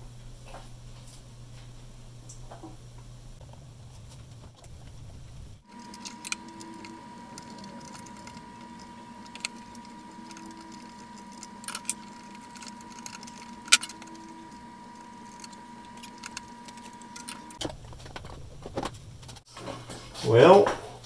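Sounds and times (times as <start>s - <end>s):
steady electrical hum: 0.0s - 21.0s
metal tools clicking on chassis: 5.7s - 17.6s.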